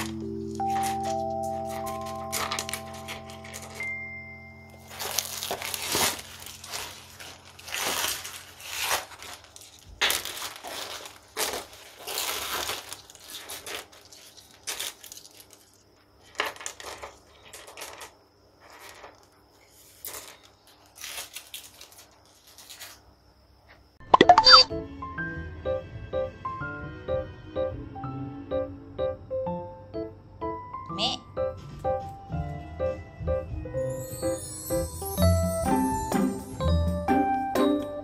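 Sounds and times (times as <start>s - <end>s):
pebbles clicking and grinding: 16.3s - 20.6s.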